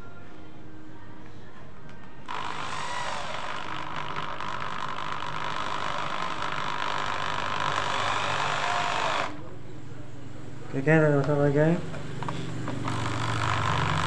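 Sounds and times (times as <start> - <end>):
power drill boring into wood: 2.3 - 9.4, 12.7 - 14.0.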